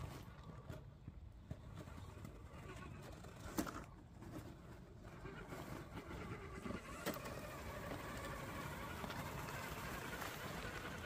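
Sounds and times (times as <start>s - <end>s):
electric motor whining: 5.2s - 11.0s.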